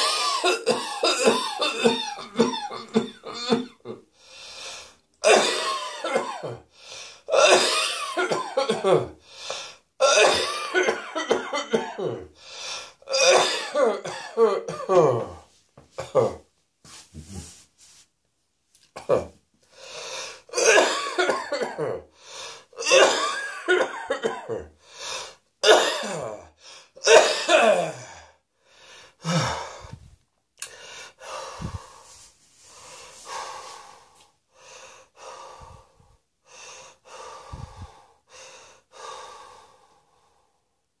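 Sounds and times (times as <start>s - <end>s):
person coughing: 0.0s - 4.0s, 5.2s - 6.7s, 7.3s - 9.2s, 10.0s - 12.3s, 13.1s - 16.4s, 18.9s - 19.4s, 20.5s - 22.1s, 22.8s - 24.8s, 25.6s - 28.1s.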